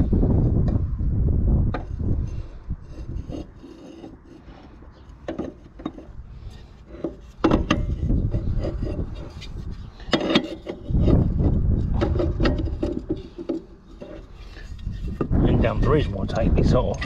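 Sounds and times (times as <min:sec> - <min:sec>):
rubbing and scraping: 0:01.6 - 0:17.0
clicks and knocks on metal parts: 0:05.0 - 0:06.1, 0:06.9 - 0:09.0.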